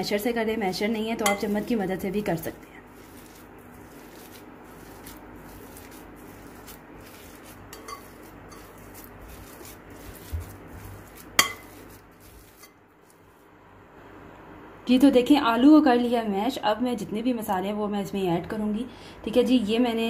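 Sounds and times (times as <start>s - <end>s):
masher mashing potatoes: 0.0s - 13.4s.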